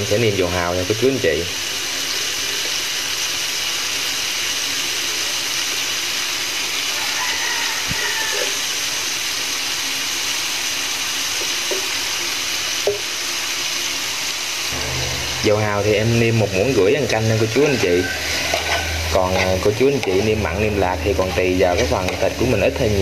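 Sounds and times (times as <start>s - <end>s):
meat sizzling in a frying pan: 0.0s - 23.0s.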